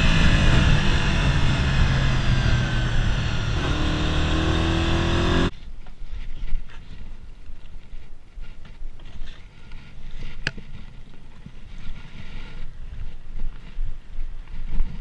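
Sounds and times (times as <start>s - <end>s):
motorcycle engine slowing down: 0.0s - 5.5s
faint clicks and rustles: 5.5s - 15.0s.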